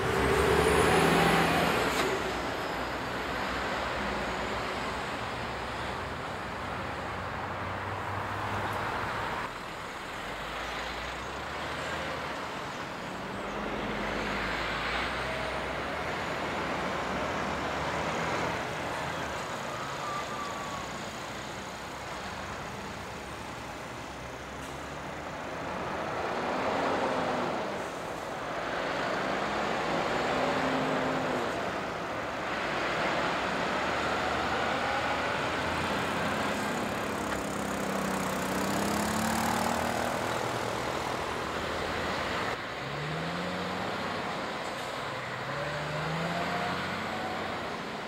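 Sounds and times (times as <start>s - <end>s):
diesel trucks driving slowly: 0.0s - 48.0s
road traffic noise: 0.0s - 48.0s.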